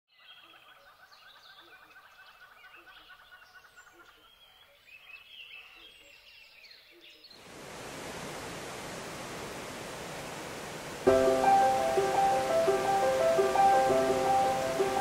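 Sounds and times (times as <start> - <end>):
loud steady rushing noise: 7.6 - 15.0
birds chirping: 10.2 - 15.0.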